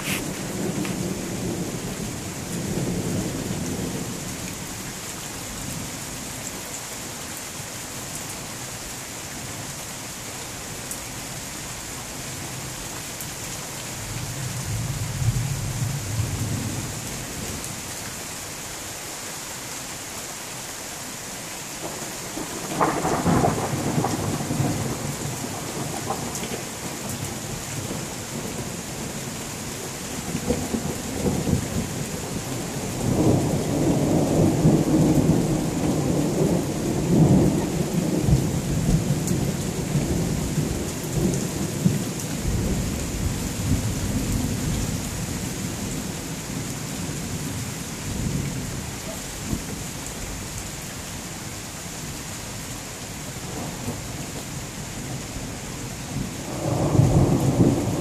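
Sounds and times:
steady rain: 0.0 - 58.0
low thunder rumble: 56.2 - 58.0.

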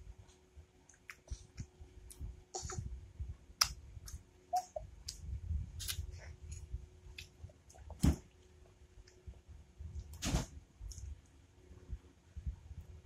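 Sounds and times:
child chewing wetly: 0.8 - 2.9, 3.6 - 8.0.

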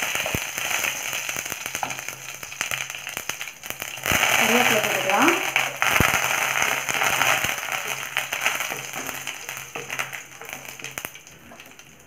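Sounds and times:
seeds popping in hot oil: 0.0 - 12.0
wooden spatula stirring: 6.6 - 11.9.

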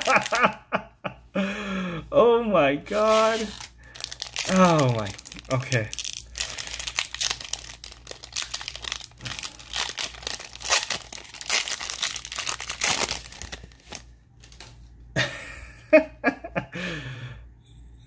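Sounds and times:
plastic wrapper crinkling: 0.0 - 0.6, 2.9 - 14.8
cards rustling: 2.9 - 14.8.

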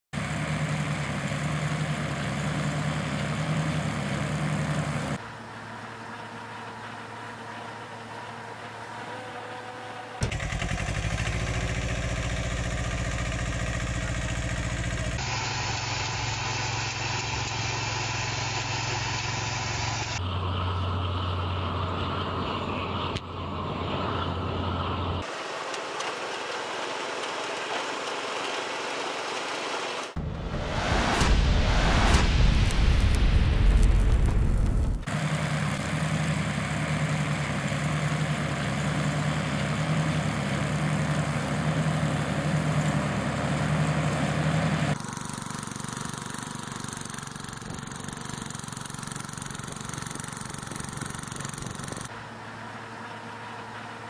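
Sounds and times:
tractor engine running: 0.2 - 9.1, 10.2 - 54.0
corn picker rattling: 10.2 - 15.2, 45.0 - 52.1
hissy machine noise: 14.8 - 20.2, 45.0 - 52.1
harvester clicks: 45.0 - 52.1.

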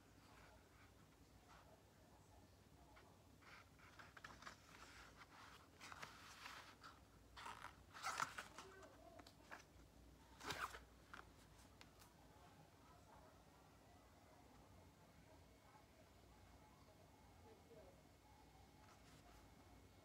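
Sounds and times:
paper pages rustling: 3.4 - 9.7.

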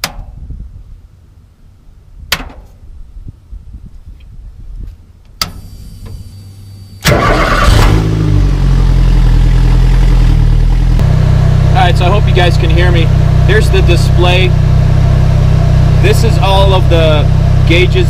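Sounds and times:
car engine starting and idling: 5.6 - 18.0.

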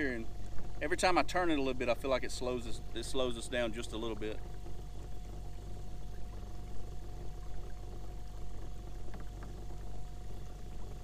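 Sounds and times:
water rushing along hull: 0.0 - 11.0.

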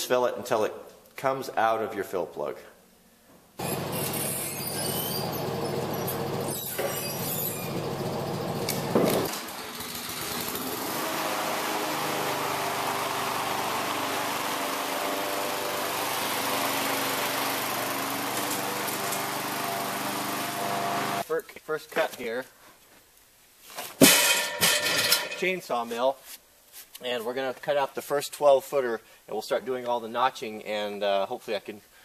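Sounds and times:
lawn mower engine running: 3.6 - 4.5, 5.2 - 21.2.

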